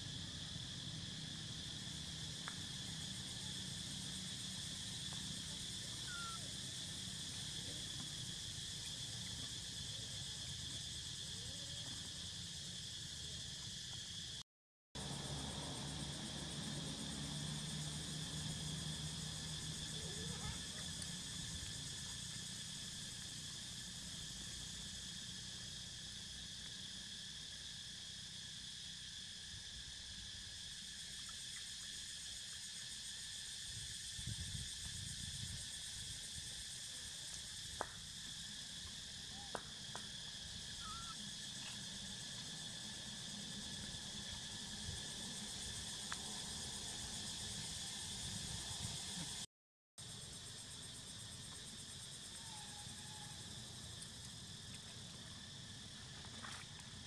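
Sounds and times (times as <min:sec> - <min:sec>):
high-pitched insect chorus: 0:00.0 - 0:14.4, 0:15.0 - 0:57.0.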